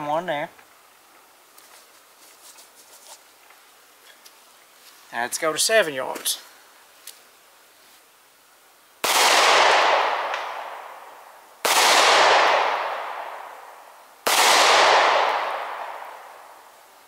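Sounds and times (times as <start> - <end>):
pistol shots with echo: 9.0 - 10.8, 11.6 - 13.4, 14.3 - 16.2.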